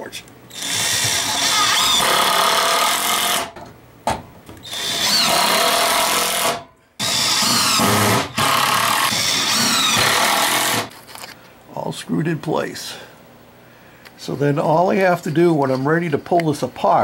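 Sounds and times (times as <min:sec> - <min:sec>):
power drill driving screws into wood: 0:00.5 - 0:03.6, 0:04.6 - 0:10.9.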